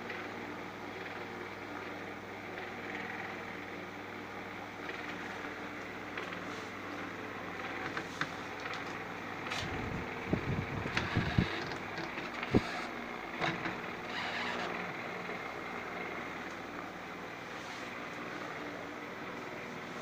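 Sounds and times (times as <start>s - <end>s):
desk fan humming: 0.0s - 20.0s.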